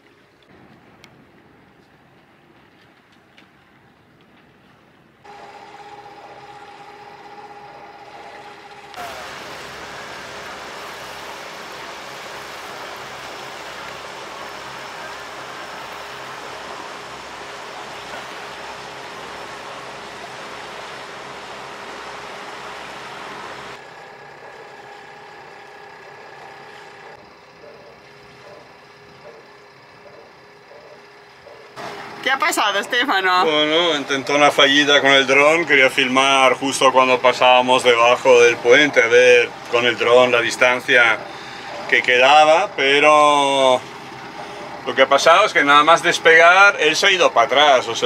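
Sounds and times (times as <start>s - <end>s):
drone propellers humming: 5.3s - 48.0s
loud rushing noise: 9.0s - 23.8s.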